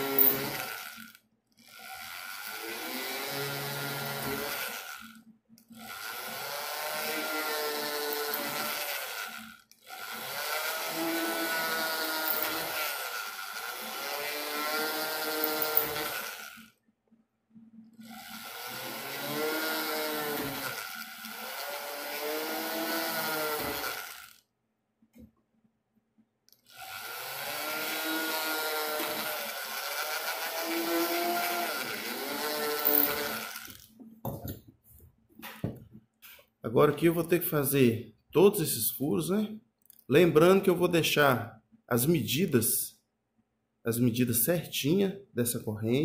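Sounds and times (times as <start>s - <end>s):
rotary tool drilling metal: 0.0s - 16.7s, 18.0s - 24.4s, 26.6s - 33.9s.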